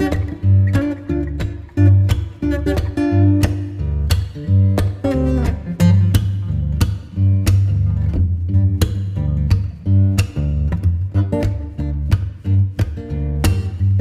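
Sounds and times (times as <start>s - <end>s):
plucked guitar: 0.0s - 14.0s
steady beat: 0.0s - 14.0s
heavy bass line: 2.9s - 14.0s.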